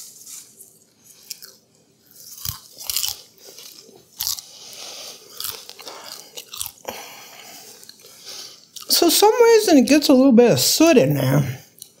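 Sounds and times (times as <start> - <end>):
person chewing popcorn: 0.0 - 9.3, 11.6 - 12.0.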